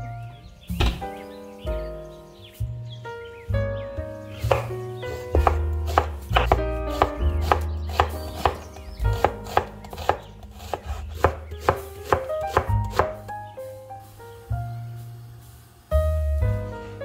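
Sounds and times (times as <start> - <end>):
knife slicing onion on board: 4.5 - 13.3.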